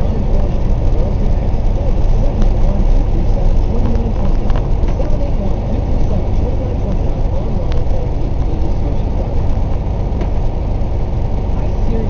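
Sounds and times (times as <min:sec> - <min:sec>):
road noise: 0:00.0 - 0:12.0
truck engine rumble: 0:00.0 - 0:12.0.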